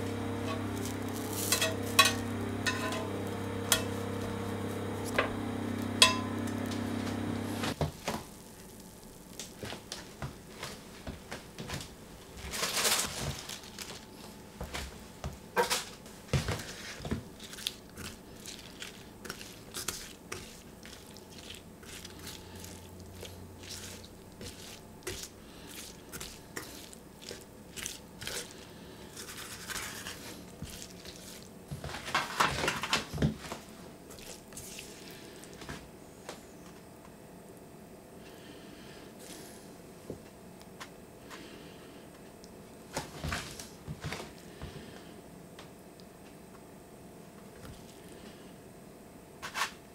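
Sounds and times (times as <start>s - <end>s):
spatula scraping frying pan: 0.0s - 7.8s, 18.9s - 32.5s
vegetables squishing: 0.1s - 5.2s, 16.8s - 32.7s, 33.5s - 35.8s.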